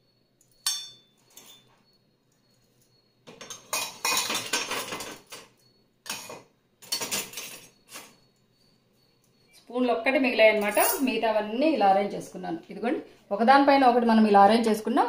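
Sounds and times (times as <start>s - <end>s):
metal vessels clinking and rattling: 3.3s - 8.1s, 10.6s - 11.1s.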